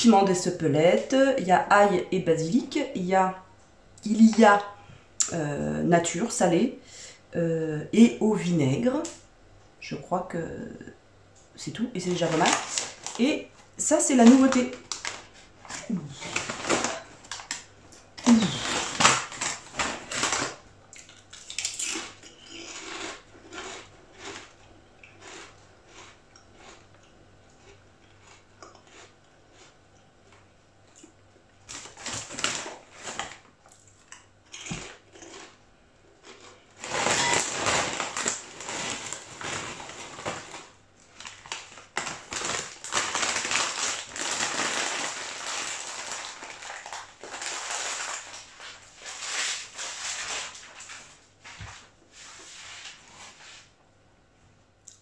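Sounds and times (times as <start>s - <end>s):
crisp packet crinkling: 12.0s - 24.5s, 31.7s - 33.9s, 36.2s - 51.2s
crunching of crisps being eaten: 12.1s - 13.3s, 14.2s - 51.1s.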